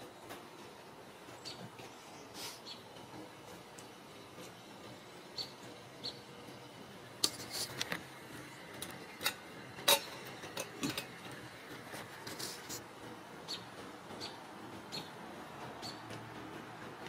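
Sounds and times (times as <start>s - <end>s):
cat eating from metal bowl: 7.2s - 12.8s.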